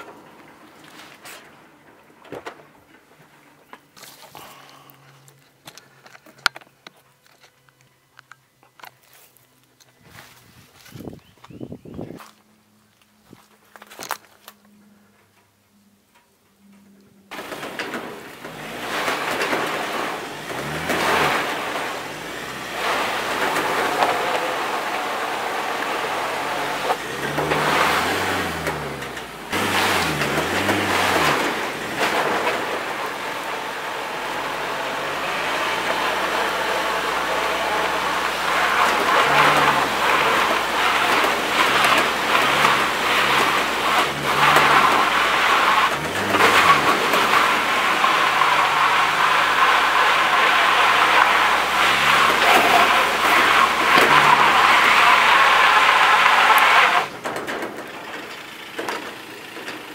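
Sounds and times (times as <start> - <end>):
van engine revving: 0.0 - 5.8, 17.3 - 59.9
tyres spinning in mud: 17.3 - 59.9.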